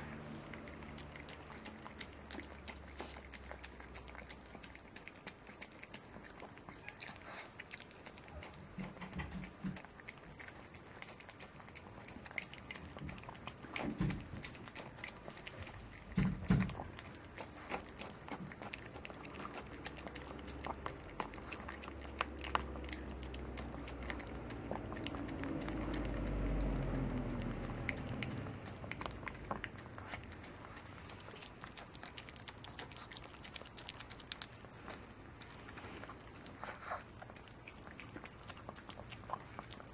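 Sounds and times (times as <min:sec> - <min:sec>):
dog licking and lapping: 0:00.0 - 0:39.9.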